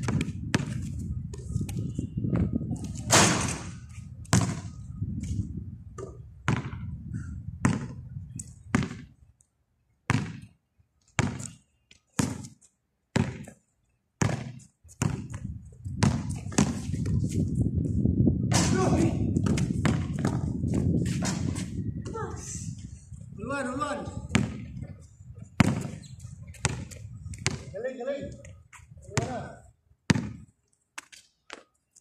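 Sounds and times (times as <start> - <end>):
basketball bouncing on concrete: 0.0 - 1.9, 4.2 - 4.7, 6.0 - 6.9, 7.6 - 8.0, 8.7 - 9.1, 10.1 - 10.6, 11.2 - 11.6, 12.2 - 13.6, 14.2 - 17.2, 18.5 - 21.6, 24.3 - 24.8, 25.6 - 27.8, 29.1 - 30.5.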